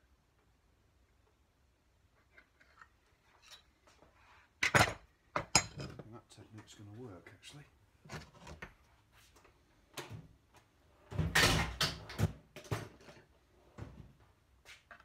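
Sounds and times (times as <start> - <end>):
tools clattering: 4.6 - 6.1.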